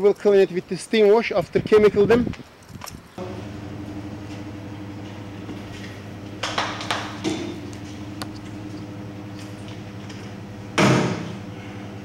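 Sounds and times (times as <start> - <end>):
steady machine hum: 3.2 - 12.0.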